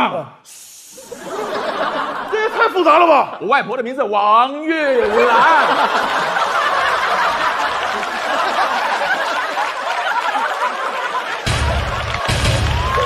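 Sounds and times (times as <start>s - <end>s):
audience laughing: 1.0s - 3.4s, 5.0s - 13.0s.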